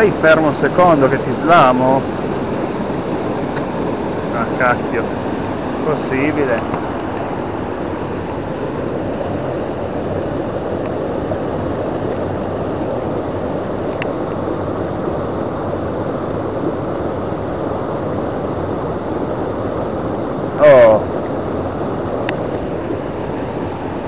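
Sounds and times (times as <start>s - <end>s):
rushing mountain stream: 0.0s - 24.0s.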